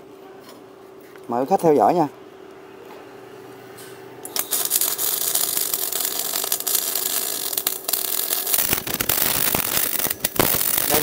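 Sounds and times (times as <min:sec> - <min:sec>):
welding arc crackling: 0:04.3 - 0:11.0.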